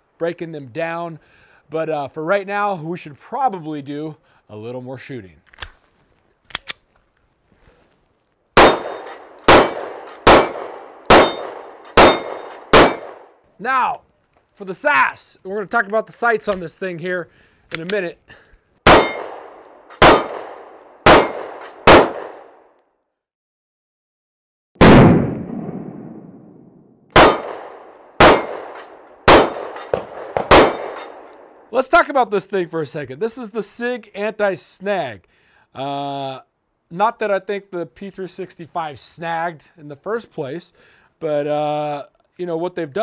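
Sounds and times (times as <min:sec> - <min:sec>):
ringing of steel targets: 0:08.6 - 0:13.2, 0:18.9 - 0:21.9, 0:27.2 - 0:31.3
pistol shots: 0:08.6 - 0:13.3, 0:18.8 - 0:22.6, 0:24.8 - 0:26.3, 0:27.1 - 0:31.6.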